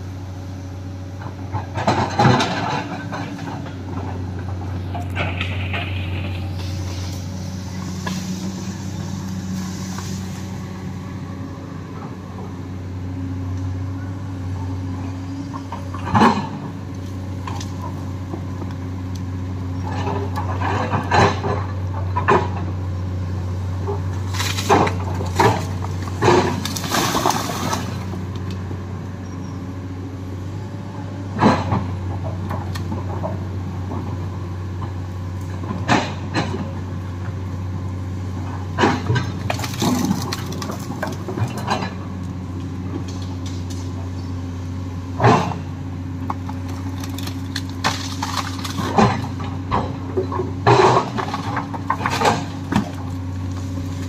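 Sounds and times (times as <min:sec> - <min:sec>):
excavator diesel engine running: 0:00.0 - 0:54.0
cracks of roots tearing: 0:24.2 - 0:28.6, 0:38.9 - 0:41.8, 0:46.3 - 0:49.5.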